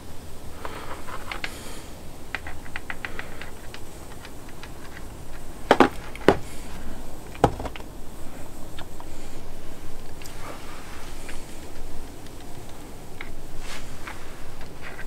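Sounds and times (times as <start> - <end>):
loud knocks: 5.7 - 6.5, 7.4 - 7.8.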